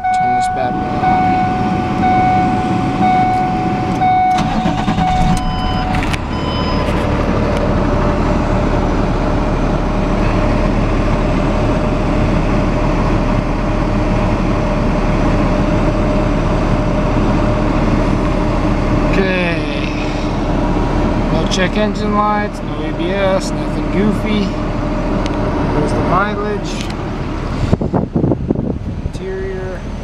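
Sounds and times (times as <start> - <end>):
repeating electronic chime: 0.0 - 7.2
diesel engine starting and idling: 0.0 - 30.0.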